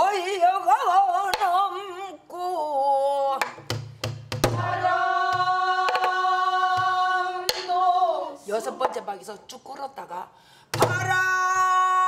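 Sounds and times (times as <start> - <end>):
drumstick clacking on wooden drum body: 5.8 - 6.2.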